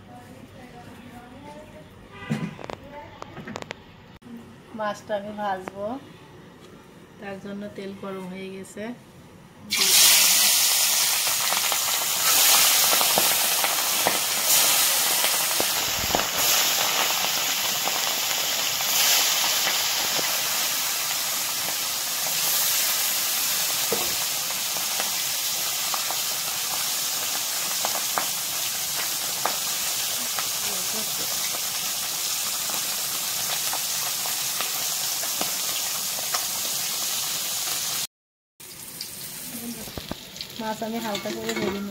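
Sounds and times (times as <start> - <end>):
fish sizzling in hot oil: 9.7 - 41.9.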